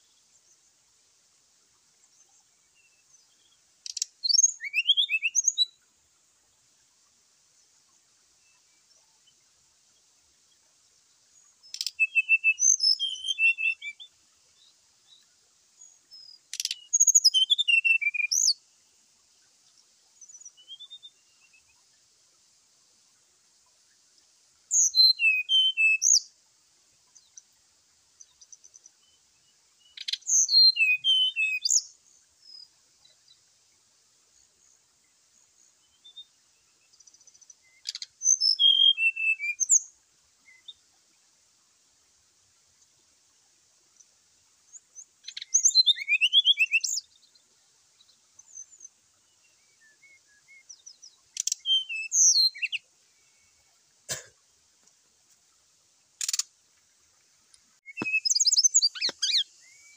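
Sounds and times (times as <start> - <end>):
bird chirps and whistles: 3.9 - 5.7, 11.7 - 14.0, 16.6 - 18.6, 24.7 - 26.2, 30.0 - 31.8, 37.8 - 39.8, 45.3 - 47.0, 51.4 - 52.8, 57.8 - 59.9.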